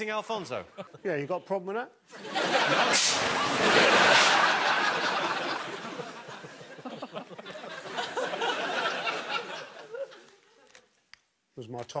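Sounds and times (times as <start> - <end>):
audience laughing: 2.1 - 10.8.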